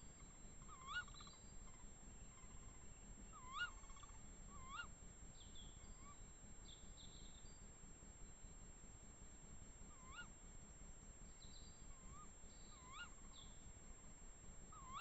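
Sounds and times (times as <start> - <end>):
owl calls: 0.0 - 6.3, 9.9 - 10.4, 11.4 - 13.6, 14.7 - 15.0.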